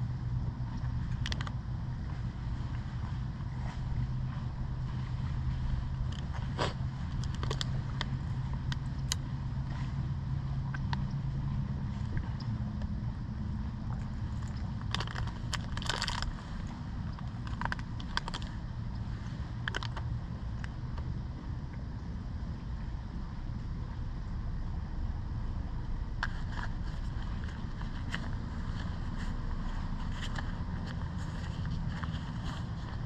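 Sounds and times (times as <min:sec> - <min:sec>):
low steady hum: 0:00.0 - 0:33.0
bicycle clicks and rattles: 0:01.0 - 0:01.6, 0:06.1 - 0:09.2, 0:14.0 - 0:18.6, 0:19.6 - 0:20.8.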